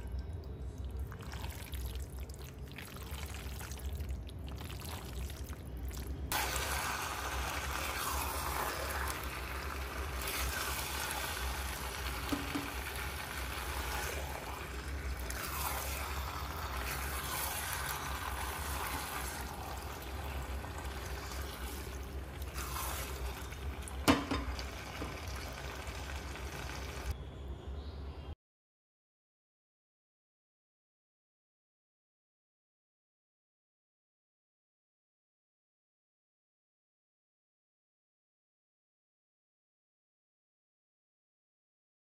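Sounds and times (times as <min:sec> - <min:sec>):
wet squelching of stirred pasta: 0:00.5 - 0:27.1
spatula knocking against pan: 0:24.1 - 0:24.6.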